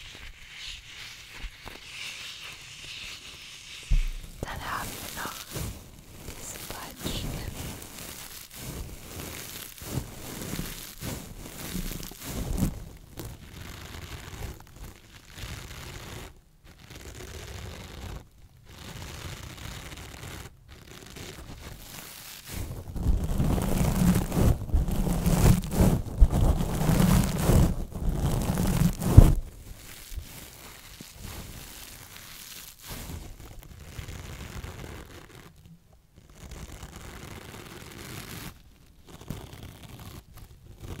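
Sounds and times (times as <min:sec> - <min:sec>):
sharp knock: 0:03.9 - 0:04.4.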